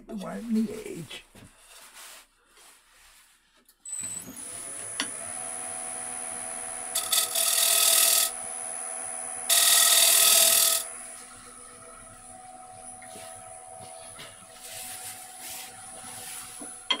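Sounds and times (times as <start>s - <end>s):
wood lathe whining: 3.9s - 17.0s
turning tool scraping wood: 6.8s - 8.4s, 9.5s - 11.2s.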